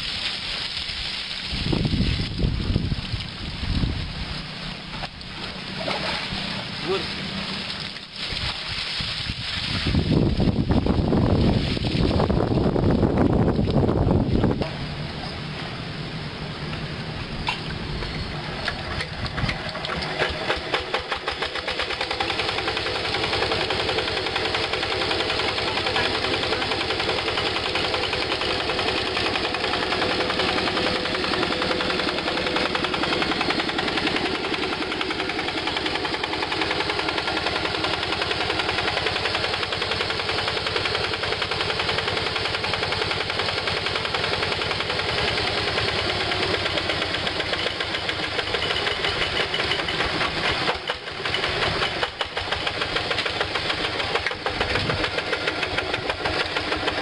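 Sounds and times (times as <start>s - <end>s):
diesel engine chugging: 12.1s - 57.0s.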